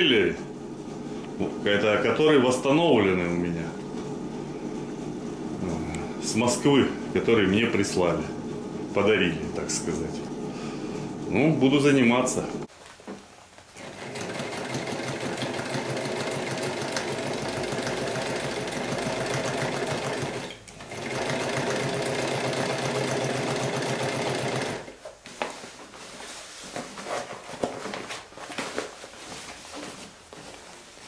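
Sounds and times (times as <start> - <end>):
sewing machine stitching: 13.8 - 24.9.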